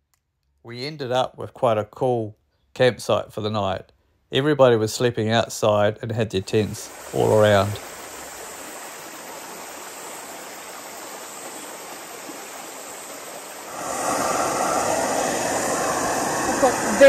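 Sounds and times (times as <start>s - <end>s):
loud steady hiss: 6.4s - 17.0s
river rushing: 6.8s - 17.0s.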